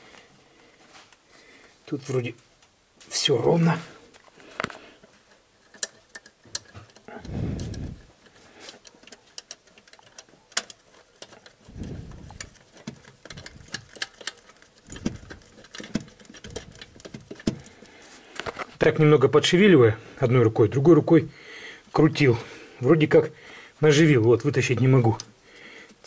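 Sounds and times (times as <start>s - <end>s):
light metal clicks of bolt: 5.6s - 7.3s, 8.7s - 11.6s, 12.3s - 17.8s.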